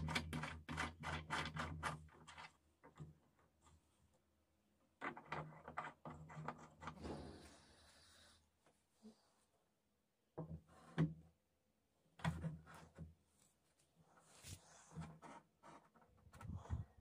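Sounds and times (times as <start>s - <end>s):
plastic pipe knocking and scraping: 0.0s - 3.8s, 4.9s - 7.6s, 10.3s - 11.4s, 12.1s - 13.2s, 14.5s - 17.0s.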